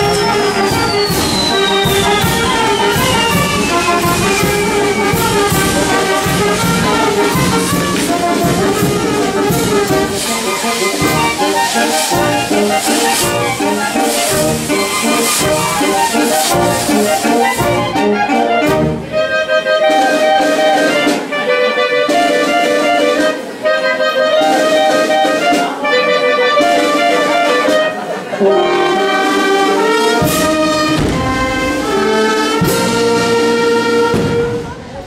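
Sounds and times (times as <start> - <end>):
long falling whistle: 0.0 - 6.0, 10.4 - 18.0
wind band playing: 0.0 - 35.0.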